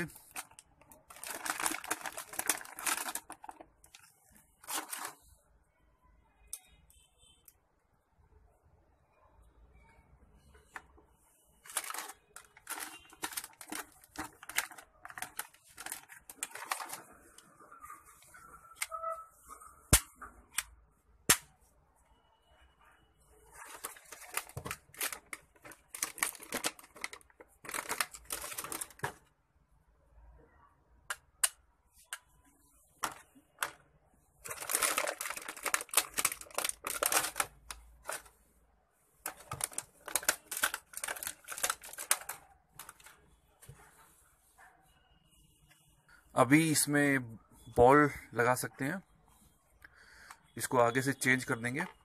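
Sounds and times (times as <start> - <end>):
plastic toy parts clicking and rattling: 0.3 - 4.0, 11.7 - 17.1, 23.7 - 29.1, 34.4 - 38.3, 39.2 - 43.1.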